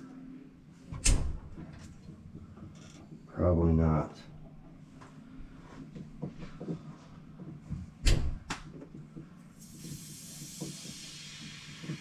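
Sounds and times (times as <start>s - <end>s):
gas torch hissing: 9.6s - 12.0s.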